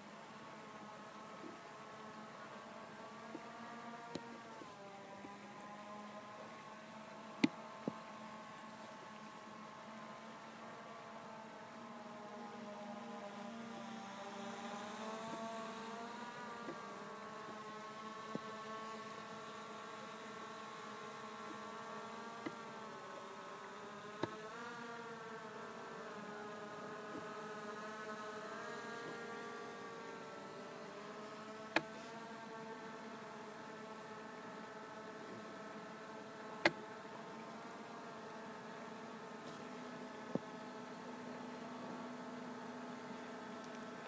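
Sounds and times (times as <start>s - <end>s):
drone propellers buzzing: 11.6s - 44.0s.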